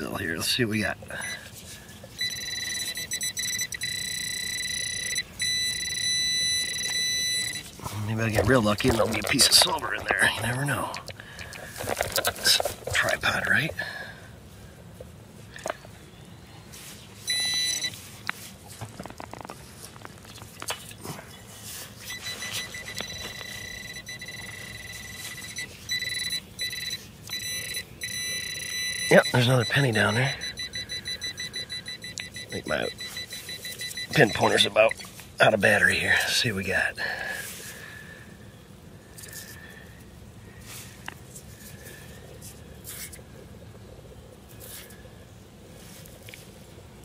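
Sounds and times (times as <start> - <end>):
high steady alert tone: 2.2 - 7.8, 22.1 - 35.0
digging in soil: 6.8 - 13.7.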